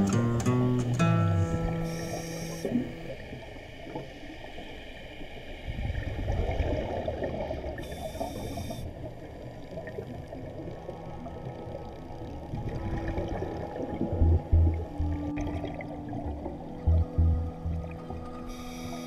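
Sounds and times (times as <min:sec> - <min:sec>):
guitar music: 0:00.0 - 0:03.0, 0:14.0 - 0:19.0
diver inhaling through regulator: 0:01.7 - 0:02.9, 0:18.4 - 0:19.0
gurgling exhaled bubbles: 0:12.5 - 0:16.4.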